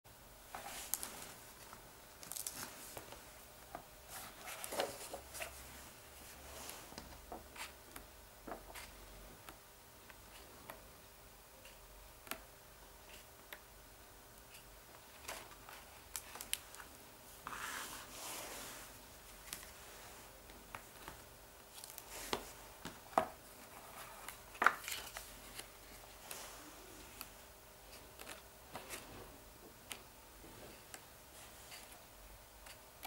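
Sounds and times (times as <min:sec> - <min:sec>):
pages turning: 0:00.5 - 0:03.2, 0:04.1 - 0:05.6, 0:23.6 - 0:26.6
sliding rustle: 0:17.4 - 0:20.3.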